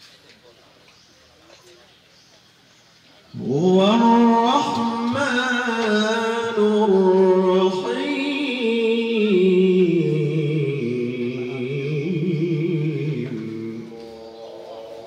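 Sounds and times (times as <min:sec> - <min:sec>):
man reciting melodically: 0:03.3 - 0:15.0.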